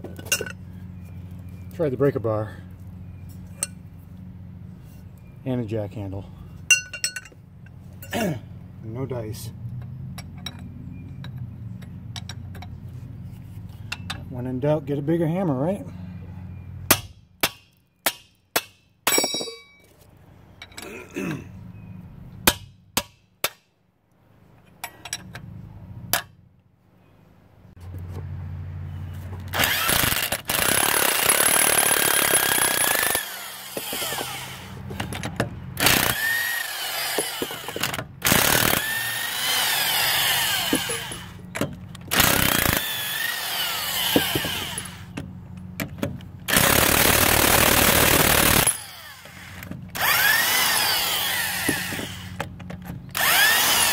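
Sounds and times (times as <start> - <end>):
sledgehammer striking metal wrench: 6.7 - 7.4, 16.9 - 19.9
impact wrench hammering: 29.6 - 44.9, 50.0 - 52.4.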